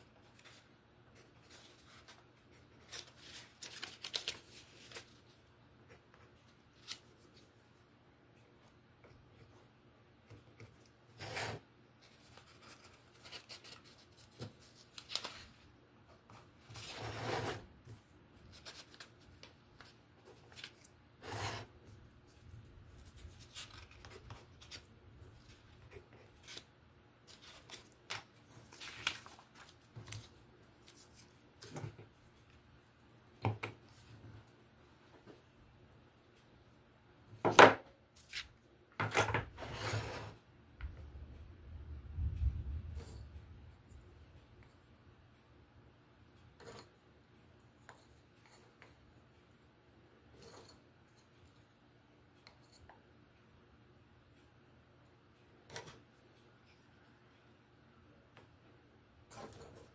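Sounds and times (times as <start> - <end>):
paper and tape rustling: 0.2 - 5.4, 11.2 - 15.7, 16.6 - 32.0
pencil scratching on wood: 11.2 - 11.6, 16.9 - 17.6.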